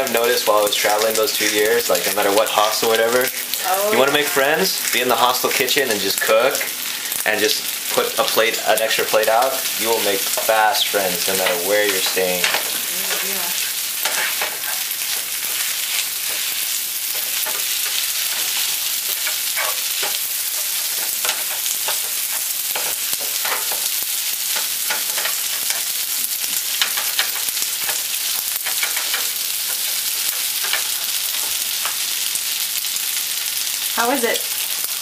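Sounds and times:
noodles sizzling in frying pan: 0.0s - 35.0s
spatula scraping pan: 9.8s - 32.1s.

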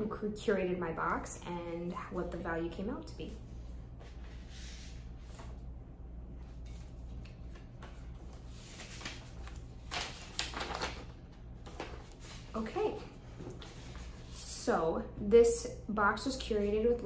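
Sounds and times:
paper rustling: 6.4s - 12.6s.

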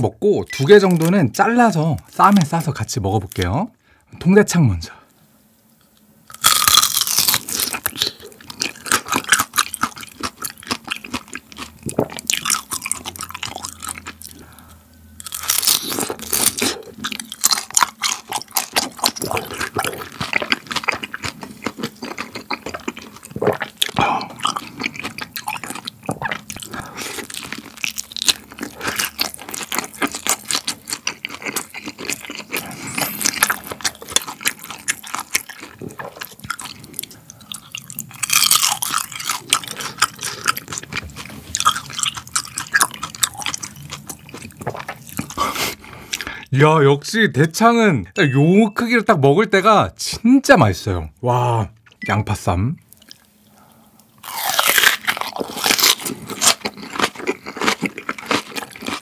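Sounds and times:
crisp bite: 6.3s - 14.4s, 54.2s - 59.0s
wet crackling chewing: 6.3s - 46.4s, 52.9s - 59.0s.

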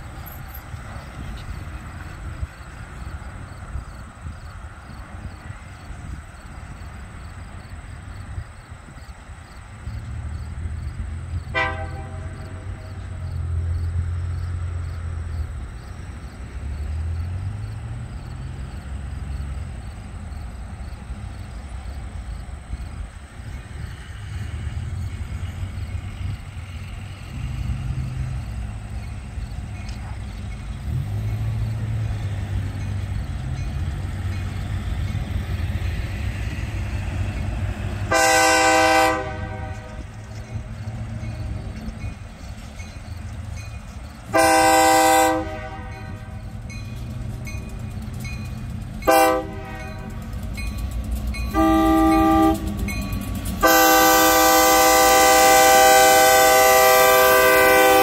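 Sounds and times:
low locomotive rumble: 0.0s - 58.0s
locomotive air horn blasts: 11.5s - 13.0s, 38.0s - 40.2s, 44.3s - 46.5s, 49.0s - 50.3s, 51.5s - 53.0s, 53.6s - 58.0s.

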